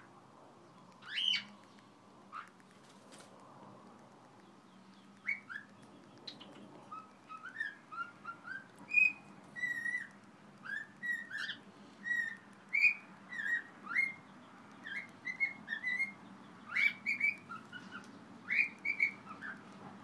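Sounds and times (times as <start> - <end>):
bird whistling chirpy song: 1.0 - 1.6, 4.8 - 19.6.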